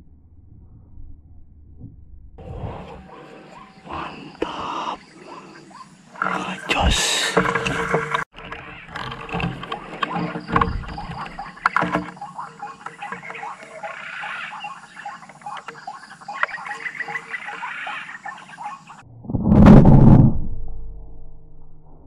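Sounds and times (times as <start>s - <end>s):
waterhens croaking calls: 2.4s - 19.0s.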